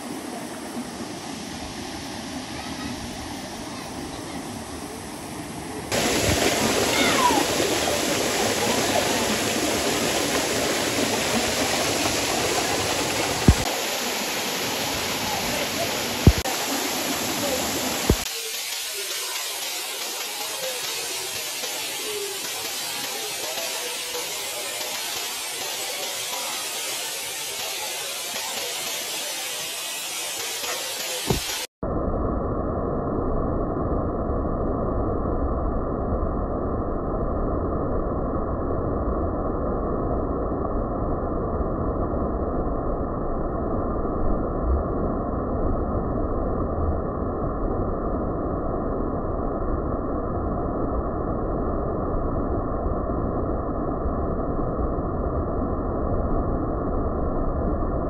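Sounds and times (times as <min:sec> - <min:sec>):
water rushing over rocks: 0:05.7 - 0:31.7.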